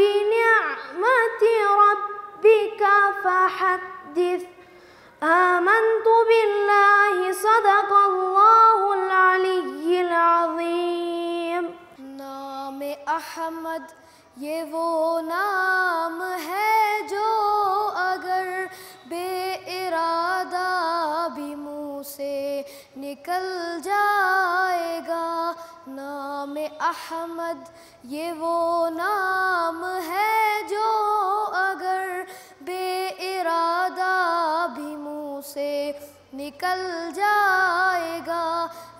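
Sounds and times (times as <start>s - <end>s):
person singing unaccompanied: 0.0s - 4.6s, 5.2s - 38.9s.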